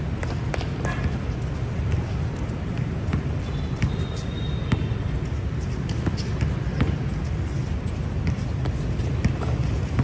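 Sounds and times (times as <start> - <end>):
players' footfalls: 0.0 - 10.0
basketball bouncing: 0.2 - 7.2, 7.8 - 10.0
faint high squeak: 3.5 - 4.9.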